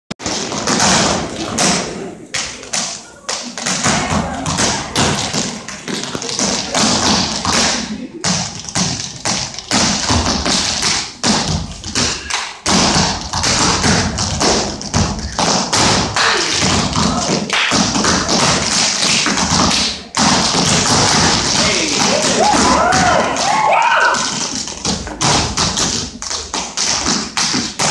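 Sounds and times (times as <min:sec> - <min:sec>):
tap shoes on stage floor: 0:00.2 - 0:27.9.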